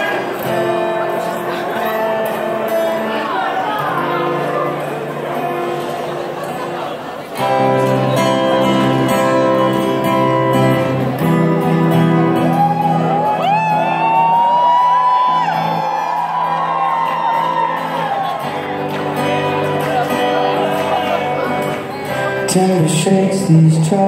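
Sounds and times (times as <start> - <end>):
acoustic guitar strumming chords: 0.0 - 13.3, 17.3 - 24.0
audience screaming and whooping: 12.1 - 22.2.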